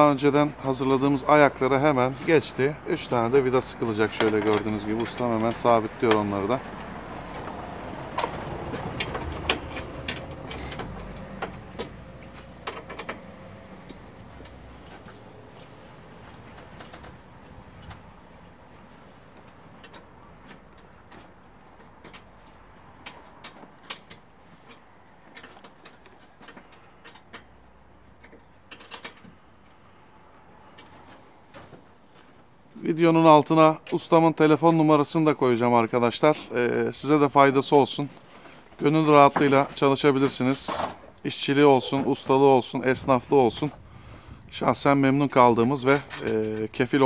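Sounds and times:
metallic clicks of hand tools: 0:08.2 - 0:12.0, 0:21.8 - 0:29.8.

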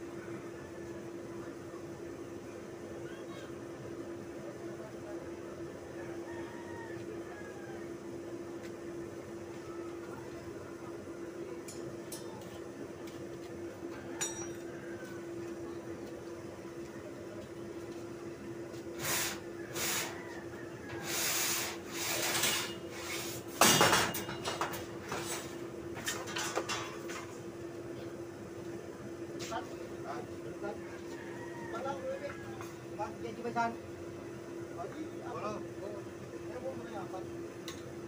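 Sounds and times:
steel rods clanking and scraping: 0:22.0 - 0:27.3.

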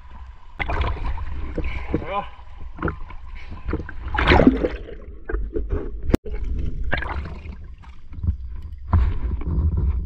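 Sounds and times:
rush of water: 0:00.0 - 0:05.1
water sloshing and gurgling: 0:00.0 - 0:10.0.

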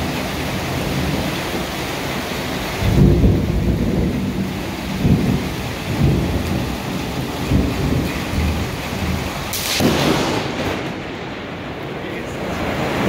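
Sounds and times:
heavy rain: 0:00.0 - 0:13.0
thunder rumbling: 0:00.0 - 0:13.0
sharp crack of lightning: 0:02.8 - 0:13.0.

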